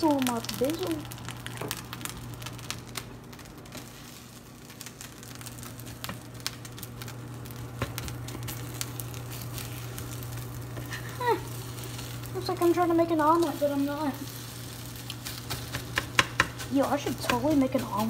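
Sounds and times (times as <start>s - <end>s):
eggs sizzling in a pan: 0.0s - 18.0s.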